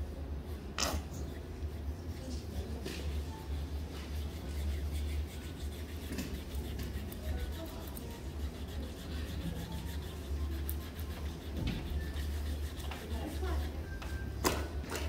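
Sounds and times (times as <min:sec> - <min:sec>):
hands rubbing on skin: 0:02.2 - 0:14.2.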